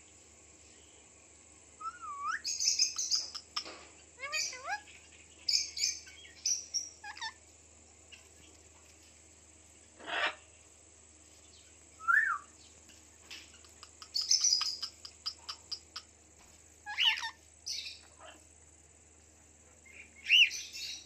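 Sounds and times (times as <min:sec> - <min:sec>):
parakeets chirping: 0:02.4 - 0:07.4, 0:10.0 - 0:10.4, 0:13.3 - 0:16.1, 0:16.9 - 0:18.4
parakeet squawk: 0:07.0 - 0:07.4, 0:10.0 - 0:10.4, 0:16.9 - 0:17.4.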